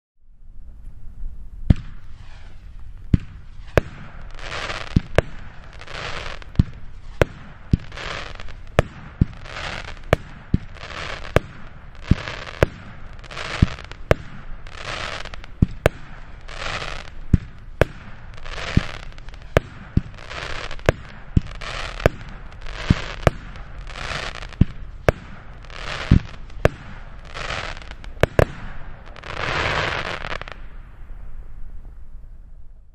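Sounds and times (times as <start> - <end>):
firework crackling: 1.3 - 32.3
firework launch thumps: 1.7 - 4.2
firework hissing: 1.8 - 30.7.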